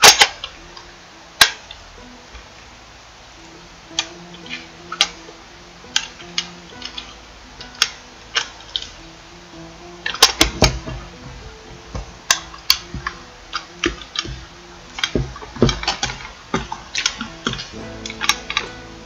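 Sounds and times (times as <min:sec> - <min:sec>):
quiet background music: 0:00.0 - 0:19.0.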